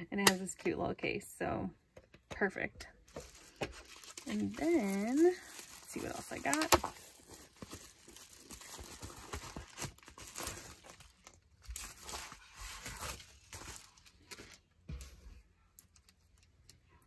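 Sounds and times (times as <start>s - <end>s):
bubble wrap crinkling: 3.1s - 14.8s.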